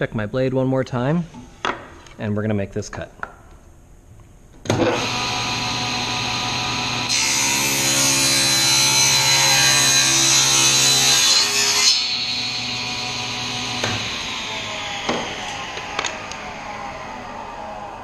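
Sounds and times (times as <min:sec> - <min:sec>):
table saw humming: 0:04.7 - 0:18.0.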